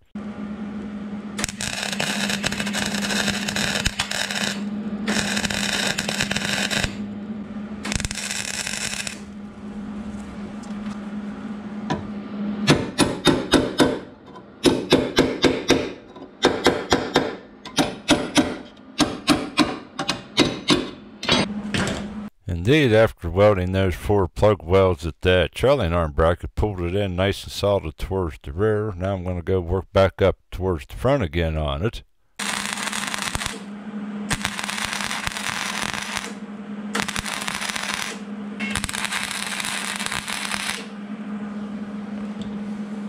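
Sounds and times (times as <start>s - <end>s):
steady welder hum: 0.0s - 22.4s, 32.2s - 43.0s
welding arc crackling: 1.4s - 11.3s, 32.4s - 33.7s, 34.3s - 41.0s.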